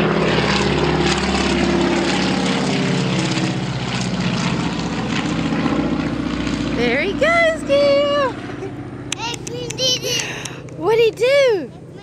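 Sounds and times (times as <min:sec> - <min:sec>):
plane engine and propeller droning: 0:00.0 - 0:12.0.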